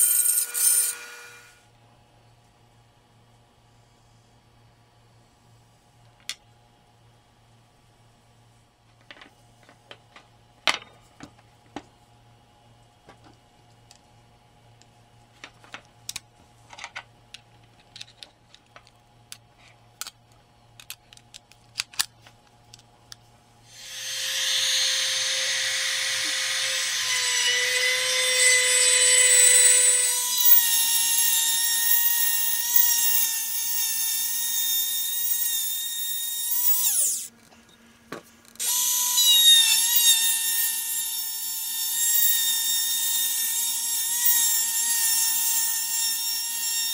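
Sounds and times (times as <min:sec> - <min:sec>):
router whining while cutting wood: 0:23.7 - 0:37.3, 0:38.6 - 0:46.9.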